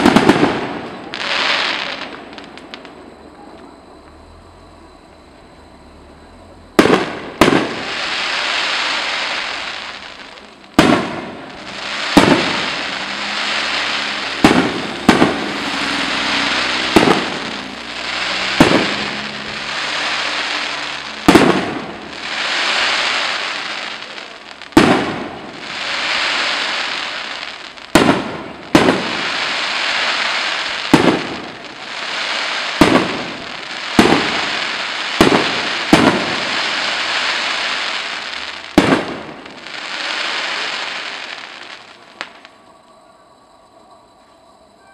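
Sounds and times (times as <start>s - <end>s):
crackling hiss of burning stars: 0.0s - 44.9s
firework shells bursting: 6.8s - 42.6s.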